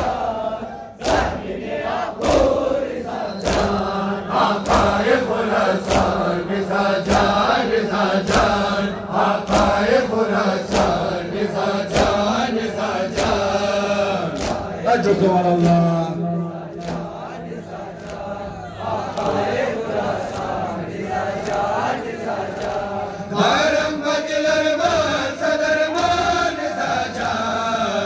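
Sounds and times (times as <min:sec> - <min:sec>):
crowd of men chanting: 0:00.0 - 0:28.0
hand-on-chest slaps: 0:01.0 - 0:01.6, 0:03.3 - 0:06.3, 0:07.0 - 0:07.6, 0:08.2 - 0:08.7, 0:09.4 - 0:11.1, 0:11.8 - 0:15.9, 0:16.7 - 0:17.3, 0:17.9 - 0:18.4, 0:19.0 - 0:19.5, 0:21.3 - 0:24.0, 0:25.9 - 0:26.3.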